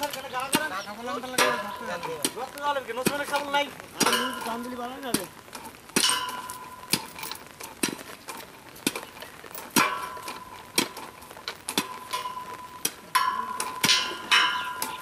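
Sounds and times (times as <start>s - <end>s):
metal striking metal: 1.3s - 2.4s, 3.1s - 4.8s, 6.0s - 7.2s, 9.7s - 11.0s, 11.7s - 15.0s.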